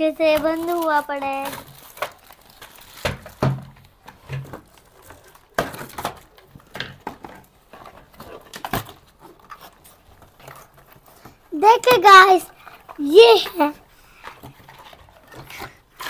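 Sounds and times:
packaging rustling: 0.0s - 16.0s.

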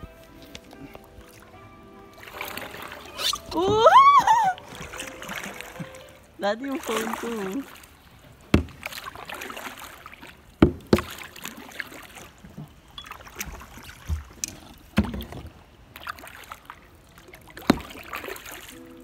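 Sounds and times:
paddle strokes in water: 0.0s - 19.0s
sharp knocks: 8.5s - 8.9s, 10.6s - 11.2s.

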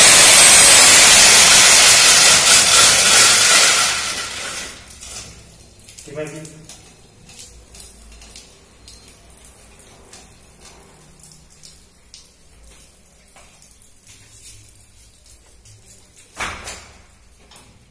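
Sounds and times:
water dripping and trickling: 4.4s - 17.9s.

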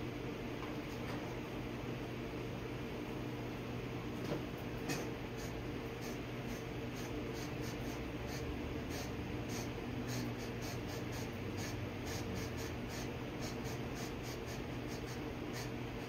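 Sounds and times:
powder spray gun hum and hiss: 4.2s - 16.0s.

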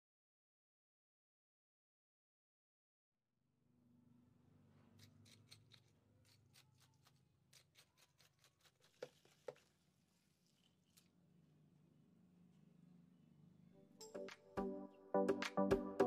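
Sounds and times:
plastic spoon stirring ice in cup: 5.0s - 11.1s.

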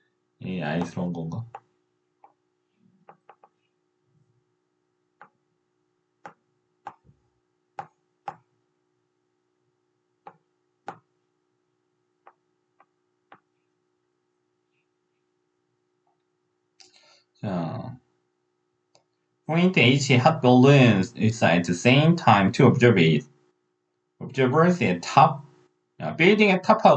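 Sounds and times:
faint steady hum: 0.0s - 1.6s, 16.2s - 18.1s, 19.5s - 23.4s.

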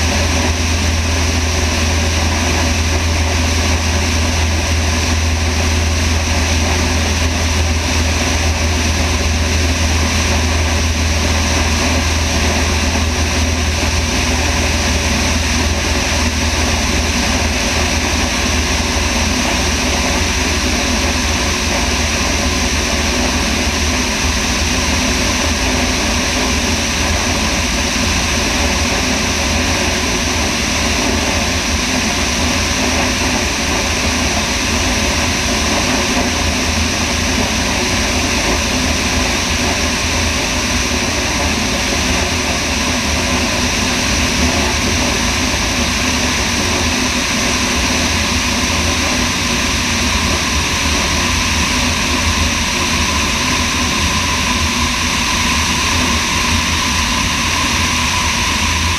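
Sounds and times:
aircraft engine and propeller drone: 0.0s - 58.9s.

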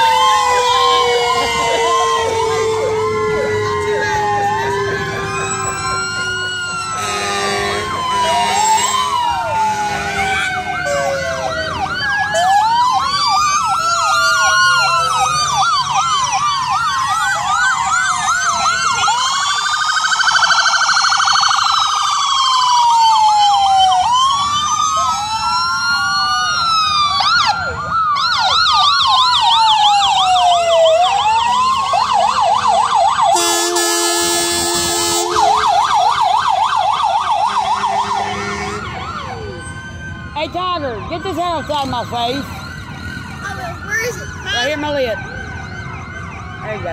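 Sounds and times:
fast warbling siren yelp: 0.0s - 46.9s
sirens wailing: 0.0s - 46.9s
short horn blast: 33.4s - 35.4s.

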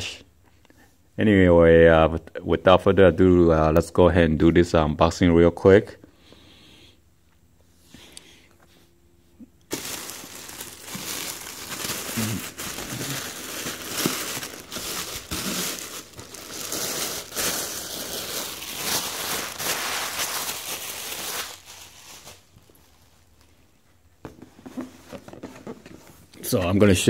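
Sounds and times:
plastic bag crinkling: 9.7s - 23.1s.

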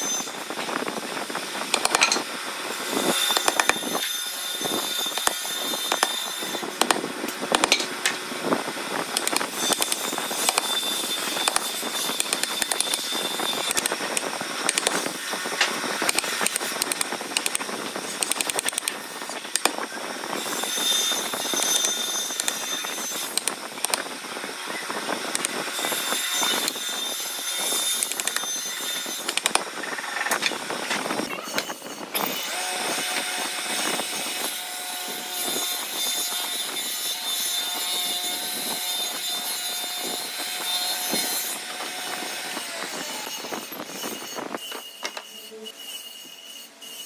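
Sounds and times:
mallet tapping chisel: 1.8s - 2.2s, 3.3s - 3.8s, 5.2s - 6.1s, 6.8s - 7.9s, 9.2s - 10.7s, 11.4s - 11.6s
chisel scraping wood: 3.0s - 7.9s, 9.2s - 15.0s, 20.6s - 24.0s.

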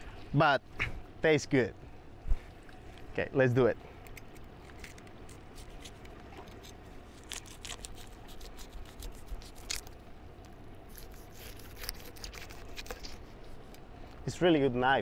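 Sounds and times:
low steady hum: 0.0s - 15.0s
knife crunching through fish scales: 4.1s - 10.0s, 10.9s - 13.4s.

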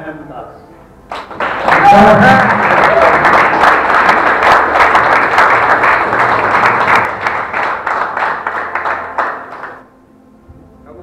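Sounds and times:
audience applause: 1.1s - 9.8s.

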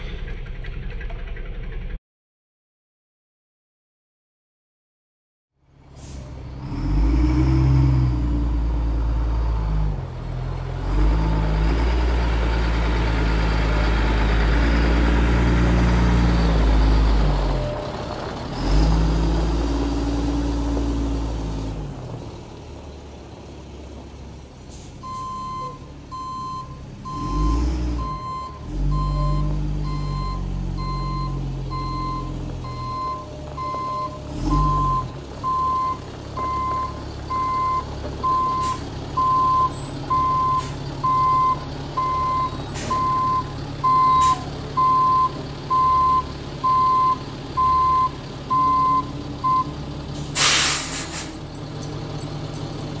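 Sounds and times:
diesel truck engine revving: 5.9s - 53.0s
reversing alarm beeping: 25.0s - 49.7s.

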